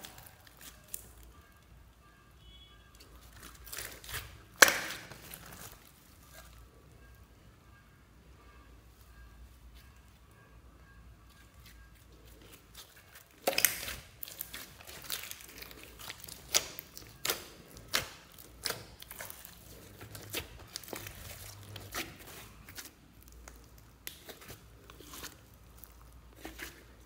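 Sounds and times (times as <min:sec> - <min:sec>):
slime popping and crackling: 0:00.0 - 0:01.3, 0:03.2 - 0:06.5, 0:12.5 - 0:27.0.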